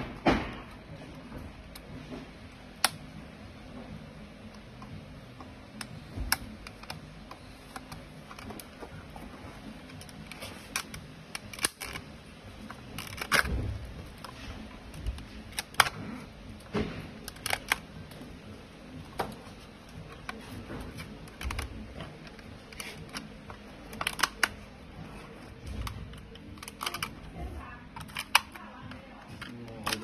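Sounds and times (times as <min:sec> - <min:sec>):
plastic clips clicking and snapping: 0:02.8 - 0:03.1, 0:04.5 - 0:08.9, 0:09.8 - 0:18.3, 0:19.0 - 0:24.8, 0:25.6 - 0:30.0.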